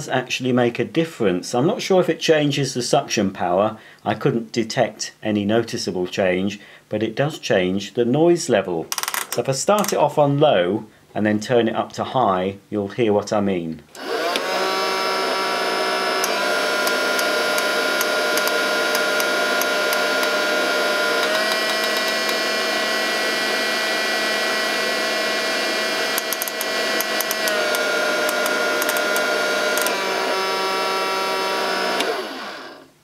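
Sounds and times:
toy vacuum cleaner motor whine: 14.0s - 32.9s.

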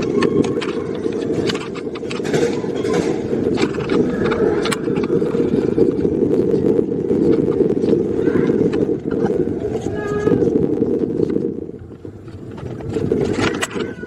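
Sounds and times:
coaster car rattling clicks: 0.0s - 6.6s, 11.2s - 14.0s
coaster wheels rumbling: 0.0s - 14.0s.

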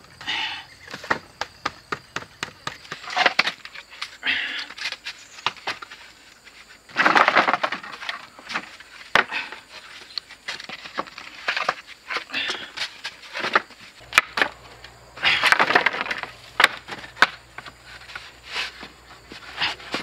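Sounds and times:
scraping and rustling: 2.9s - 20.0s
bamboo poles knocking: 13.4s - 18.3s.

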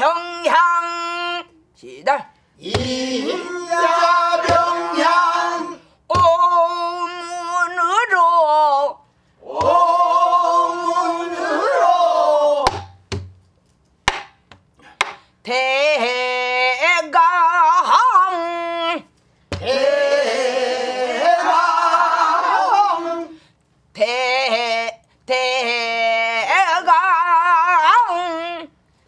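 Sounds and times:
woman singing with vibrato: 6.1s - 9.0s, 15.4s - 20.5s, 24.0s - 28.8s.

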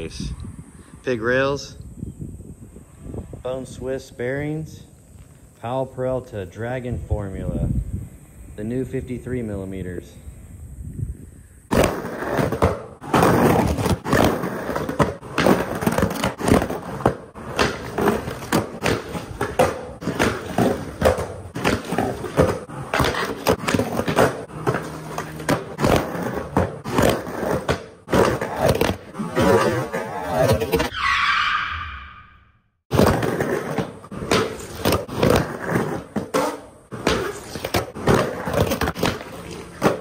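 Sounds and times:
skateboard clacks and impacts: 11.7s - 30.9s, 32.9s - 40.0s
wheels rolling on concrete: 11.7s - 30.9s, 32.9s - 40.0s
skateboard trucks scraping curb: 11.7s - 31.0s, 32.9s - 40.0s.

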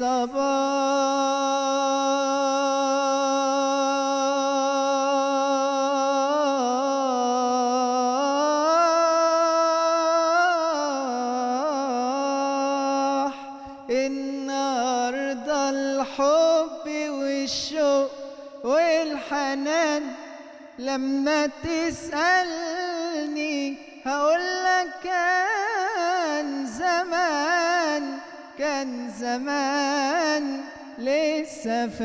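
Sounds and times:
man singing unaccompanied: 0.0s - 32.0s.

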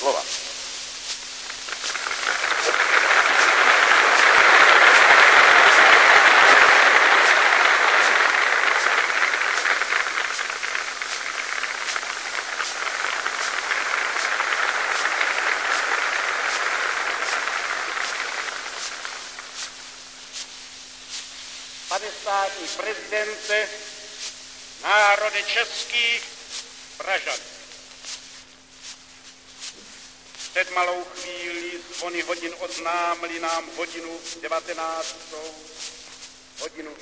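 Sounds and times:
recording crackle: 0.0s - 36.8s
steady hum: 0.0s - 37.0s
crowd applauding: 1.6s - 19.9s.

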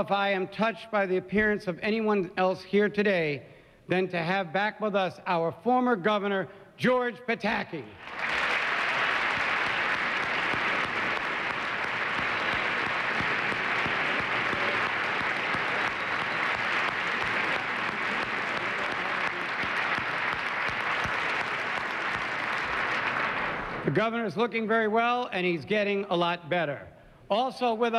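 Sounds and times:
audience applauding: 8.0s - 24.0s.

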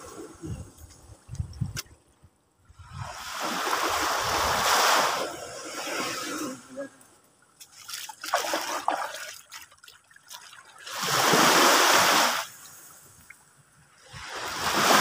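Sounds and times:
water pouring and splashing: 7.6s - 12.9s.

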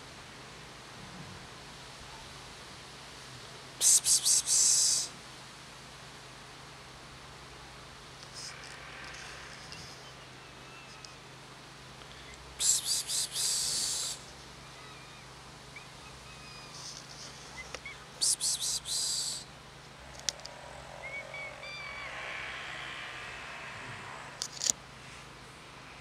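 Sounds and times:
person hissing psst: 3.8s - 5.1s, 12.1s - 14.3s, 18.2s - 19.5s, 21.0s - 24.7s.

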